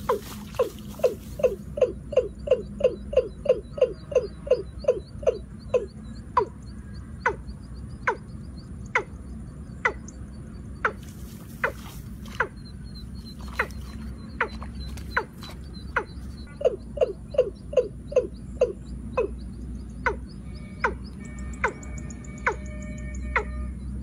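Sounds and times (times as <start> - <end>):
bird calling downward-sliding notes: 11.6 - 24.0.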